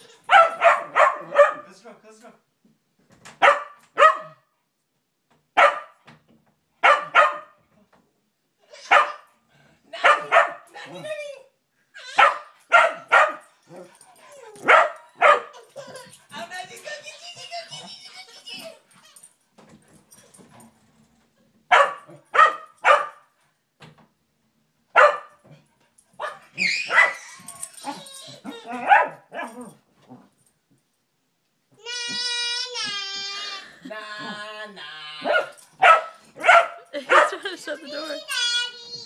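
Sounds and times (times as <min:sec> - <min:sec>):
small dog barking: 0:00.3 - 0:01.7, 0:03.4 - 0:04.4, 0:05.6 - 0:06.0, 0:06.8 - 0:07.6, 0:08.9 - 0:09.3, 0:10.0 - 0:10.7, 0:12.2 - 0:13.4, 0:14.6 - 0:15.5, 0:21.7 - 0:23.2, 0:25.0 - 0:25.4, 0:26.2 - 0:27.2, 0:28.6 - 0:29.7, 0:35.2 - 0:37.5.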